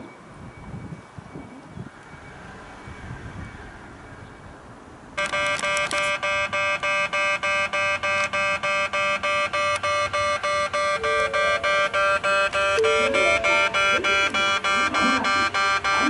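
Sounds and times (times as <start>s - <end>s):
level crossing warning bell: 5.2s - 16.0s.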